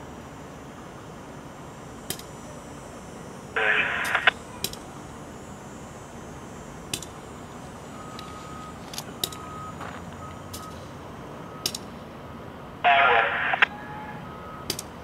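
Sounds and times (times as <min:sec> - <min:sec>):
distant machinery rumble: 0:00.0 - 0:15.0
backup alarm beeping: 0:03.6 - 0:04.3, 0:07.8 - 0:11.8, 0:12.9 - 0:14.8.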